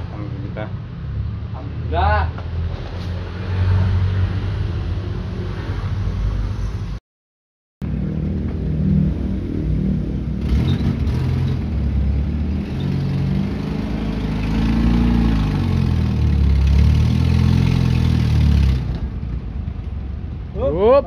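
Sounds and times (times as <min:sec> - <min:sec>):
car engine revving: 0:08.8 - 0:19.3.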